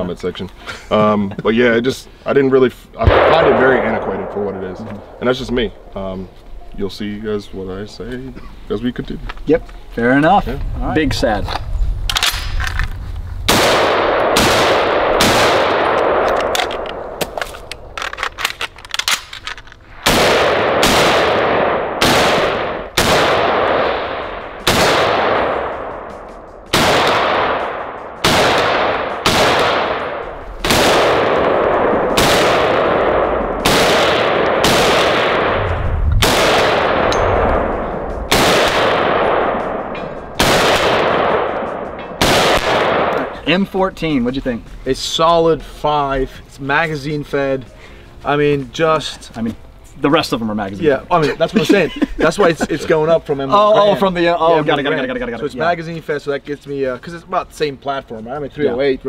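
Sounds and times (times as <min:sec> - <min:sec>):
rifle shots echoing: 0:03.0 - 0:05.9, 0:13.5 - 0:43.4.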